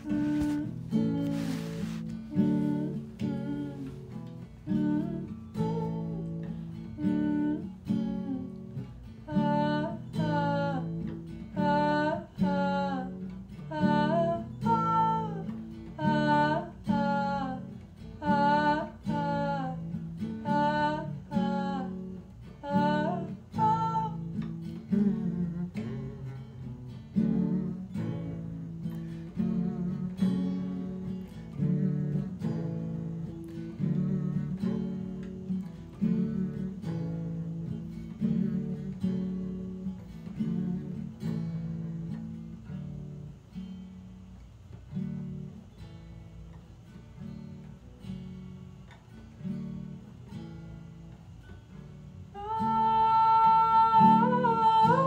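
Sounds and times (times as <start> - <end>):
person singing: 0.0 - 22.0, 52.4 - 55.0
acoustic guitar strumming: 0.0 - 55.0.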